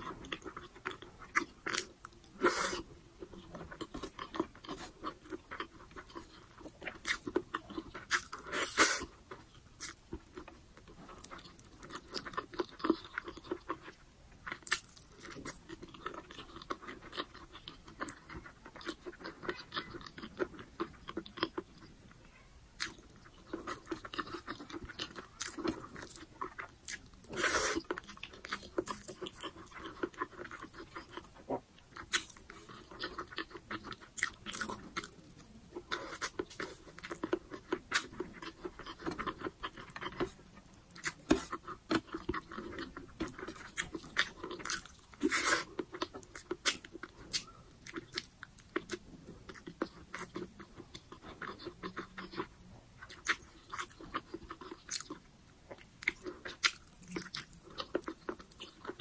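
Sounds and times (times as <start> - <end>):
person chewing and eating: 0.0 - 22.1, 22.8 - 59.0.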